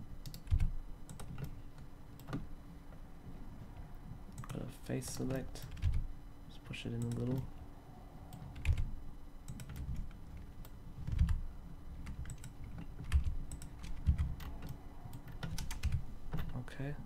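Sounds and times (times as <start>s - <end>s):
keyboard and mouse clicking: 0.2s - 1.6s, 2.2s - 2.4s, 4.3s - 6.0s, 8.3s - 8.9s, 9.5s - 11.4s, 12.0s - 16.6s.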